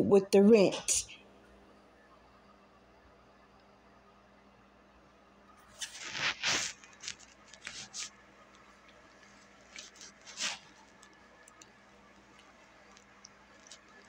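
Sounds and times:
faint steady hum: 0.0 - 14.0
rustling and scraping bursts: 5.7 - 11.6.

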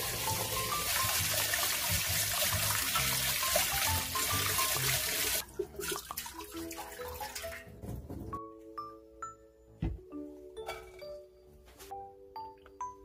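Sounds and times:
tap water running into colander: 0.0 - 7.7
light background music: 0.0 - 13.0.

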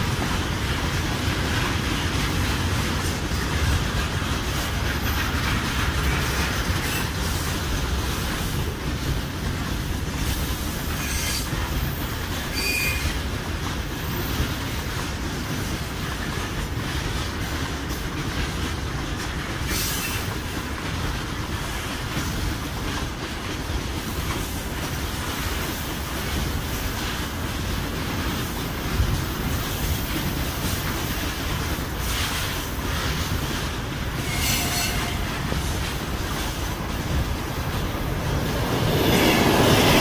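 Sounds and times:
steel wheels rolling on rails: 0.0 - 40.0
high wheel squeals: 12.5 - 13.2, 34.2 - 35.6.

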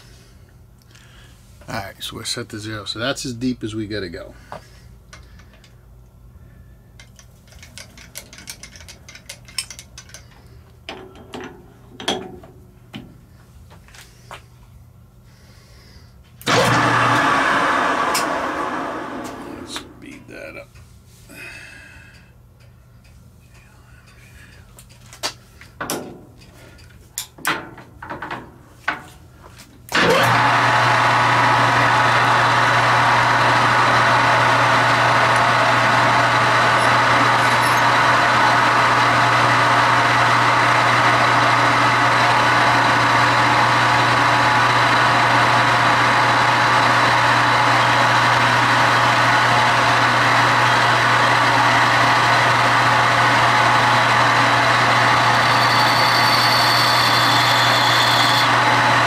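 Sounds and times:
machine tool running: 16.5 - 19.6, 30.0 - 59.0.

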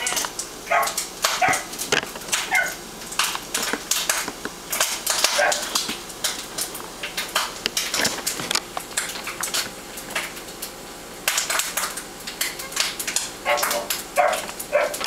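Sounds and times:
puppy barking: 0.7 - 1.7, 2.4 - 2.8, 5.3 - 5.7, 13.4 - 15.0.

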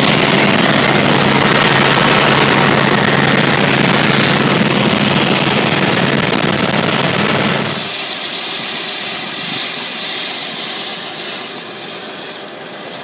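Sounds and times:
low hum: 0.0 - 7.9
helicopter engine and rotor noise: 0.0 - 13.0.

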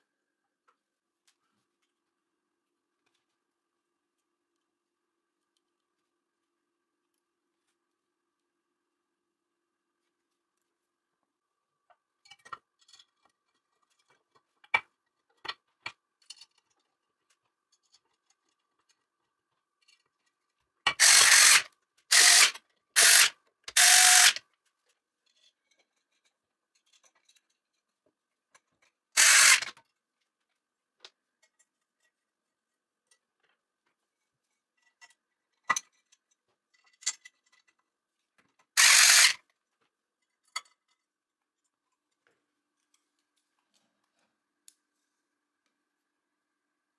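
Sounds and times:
cordless screwdriver driving bolts: 20.9 - 24.4, 38.8 - 39.4.

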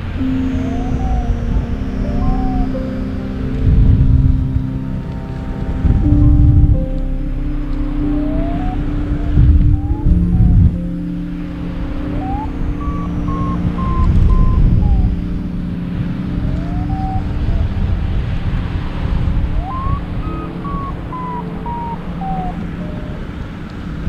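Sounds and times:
wind buffeting microphone: 0.0 - 24.0
variometer beeping: 12.0 - 15.8.

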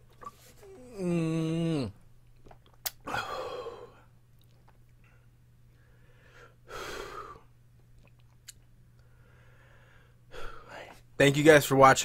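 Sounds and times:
low steady hum: 0.0 - 12.0
man breathing hard: 3.1 - 4.1, 5.7 - 7.5, 9.0 - 11.0.

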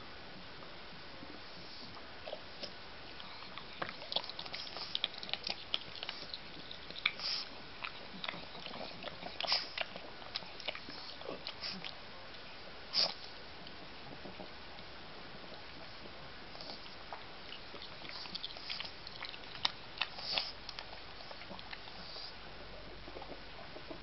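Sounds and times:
dog sniffing: 3.4 - 11.9, 12.9 - 13.3, 17.8 - 22.4.

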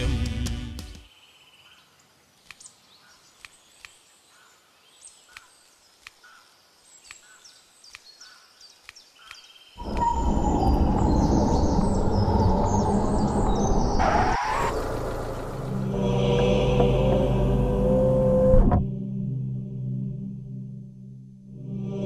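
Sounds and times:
birds chirping: 1.0 - 16.0.

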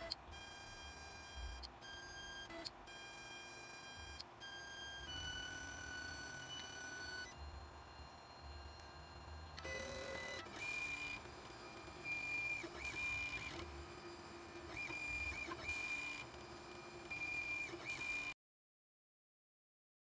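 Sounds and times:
stepper motors whining: 4.0 - 18.3.

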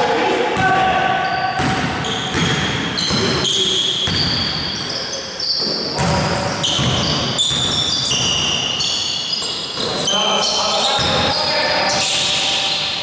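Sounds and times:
sneakers squeaking on court: 1.2 - 13.0
basketball bouncing on floor: 1.6 - 4.6, 6.0 - 8.4.

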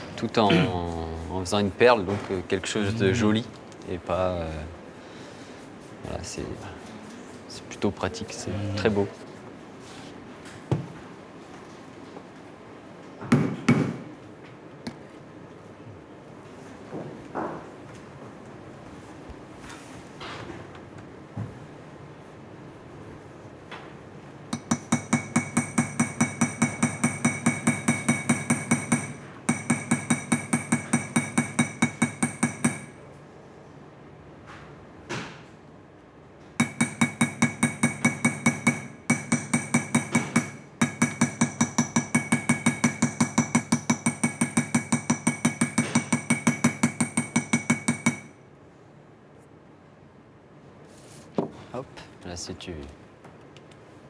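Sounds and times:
small hammer tapping on metal: 24.5 - 33.0, 36.6 - 48.3.

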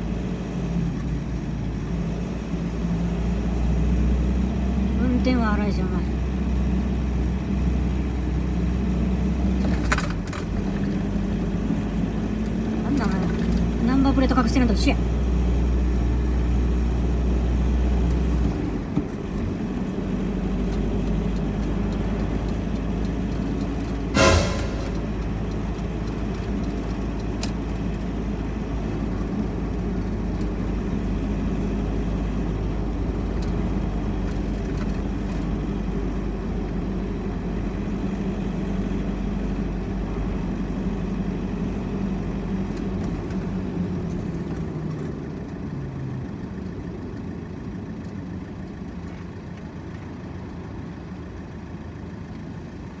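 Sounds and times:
car engine and road noise: 0.0 - 53.0
loud knock: 24.2 - 25.2.

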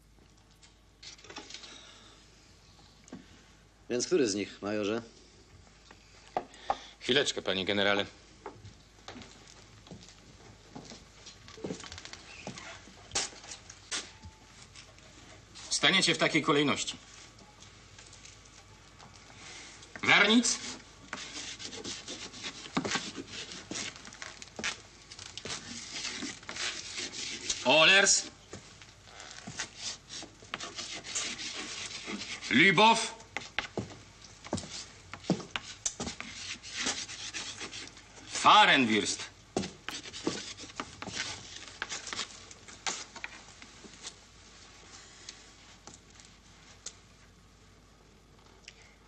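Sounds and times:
chalk scratching on blackboard: 20.3 - 24.0, 25.5 - 27.7, 29.5 - 32.6, 34.6 - 38.5, 39.6 - 42.3.

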